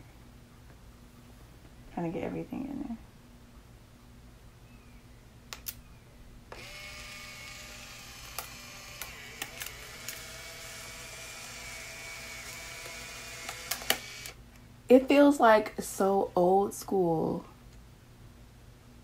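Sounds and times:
small clicks: 0:05.5 - 0:05.8, 0:07.5 - 0:10.3, 0:12.4 - 0:14.4
camera motor whirring: 0:06.5 - 0:14.4
camera shutter clicks: 0:07.4 - 0:10.3, 0:12.5 - 0:14.4.

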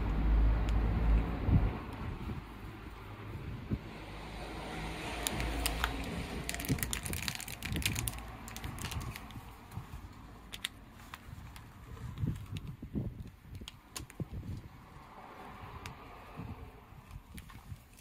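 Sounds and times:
plastic wrapper crinkling: 0:05.1 - 0:12.8.

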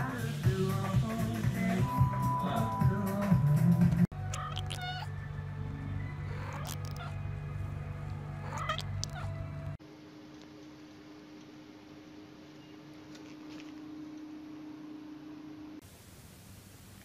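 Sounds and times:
music: 0:00.0 - 0:09.8
cat meowing: 0:04.2 - 0:05.1, 0:06.3 - 0:07.2, 0:08.4 - 0:09.4
steady low hum: 0:07.0 - 0:15.9.

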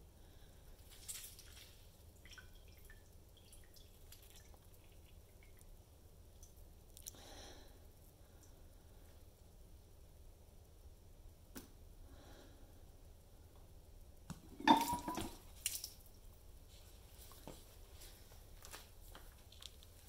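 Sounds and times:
glass clattering on table: 0:14.5 - 0:15.4
glass ringing: 0:14.6 - 0:15.4.

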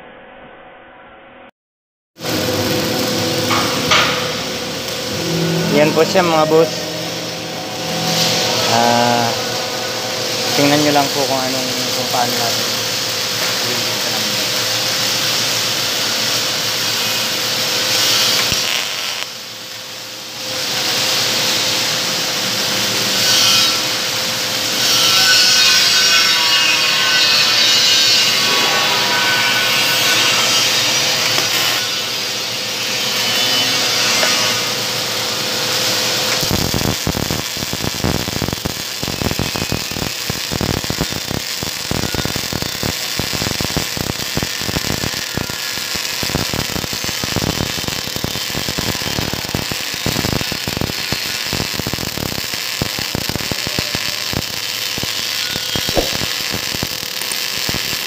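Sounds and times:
sparks spattering: 0:02.2 - 0:06.8, 0:07.8 - 0:58.0
welder hiss with faint hum: 0:02.2 - 0:58.0
welding arc crackling: 0:02.2 - 0:58.0.

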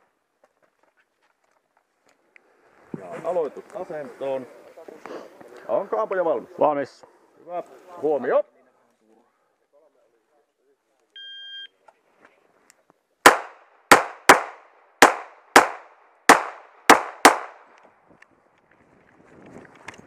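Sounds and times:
pistol firing quick shots: 0:13.2 - 0:17.7.

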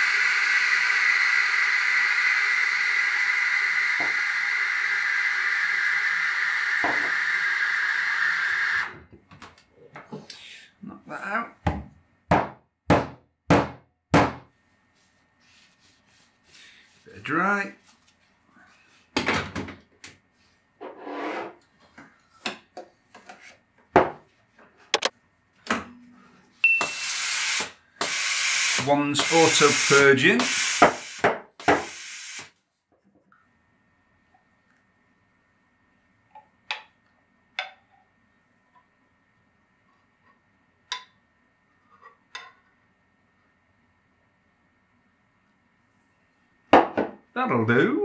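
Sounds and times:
steam wand hissing in milk: 0:27.0 - 0:32.5.

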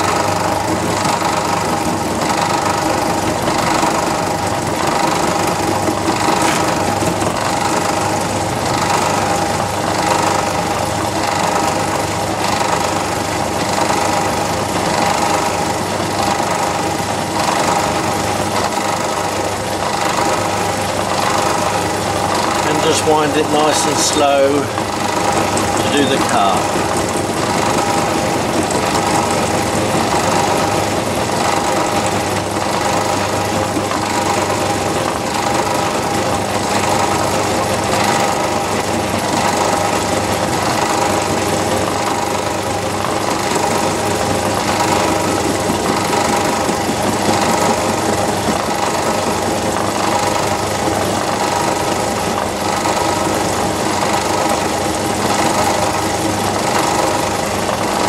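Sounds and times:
lathe milling metal: 0:00.0 - 0:58.0.

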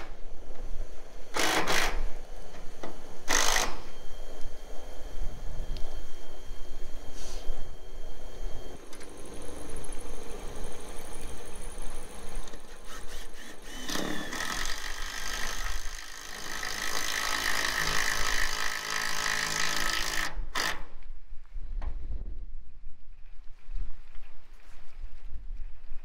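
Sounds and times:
cordless drill whining: 0:01.3 - 0:04.0, 0:08.7 - 0:21.0
wind rumble on microphone: 0:21.1 - 0:26.0.

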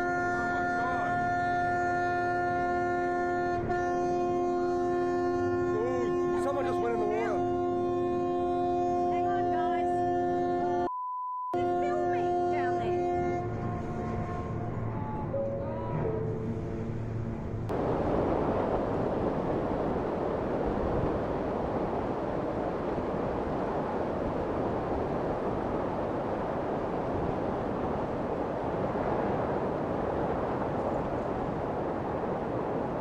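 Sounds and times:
steady rushing noise: 0:16.5 - 0:33.0.

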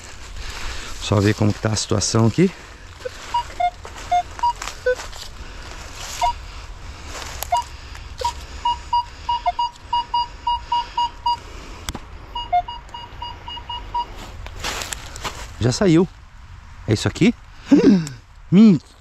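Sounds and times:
metal detector beeping: 0:03.0 - 0:05.1, 0:06.1 - 0:06.4, 0:07.4 - 0:11.4, 0:12.3 - 0:14.2.

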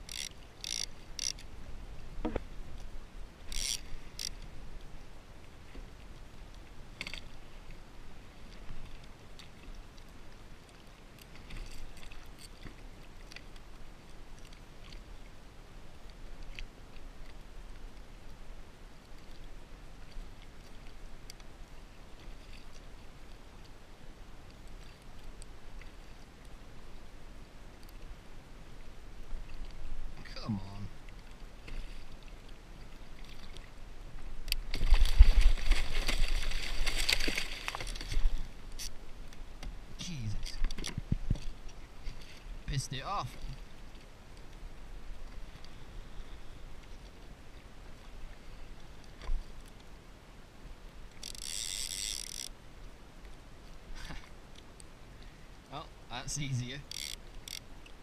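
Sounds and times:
small crackling clicks: 0:00.0 - 0:01.5, 0:51.1 - 0:52.5, 0:56.8 - 0:58.0
water splashes: 0:29.4 - 0:44.4
shark thrashing splashing water: 0:34.7 - 0:38.3.

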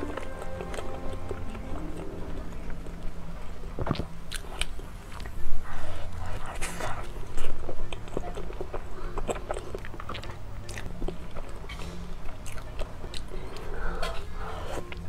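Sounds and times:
chewing mouth sounds: 0:00.0 - 0:15.0
low steady hum: 0:00.0 - 0:15.0.

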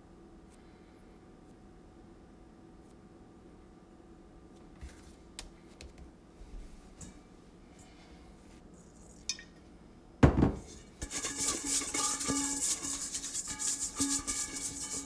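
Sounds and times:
hand rubbing inside metal bowl: 0:10.7 - 0:15.0.

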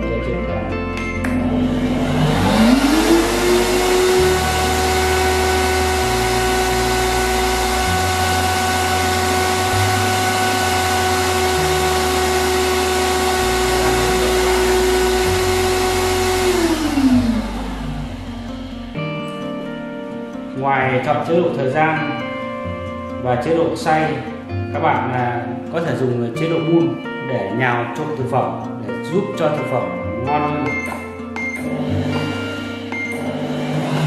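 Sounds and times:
blender motor whining: 0:01.4 - 0:18.9, 0:31.6 - 0:34.0.

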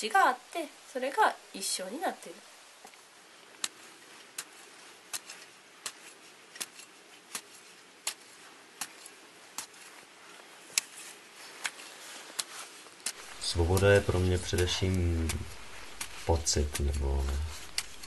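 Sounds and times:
faint steady hiss: 0:00.0 - 0:18.0
hoe chopping into soil: 0:04.4 - 0:09.8, 0:12.4 - 0:18.0.

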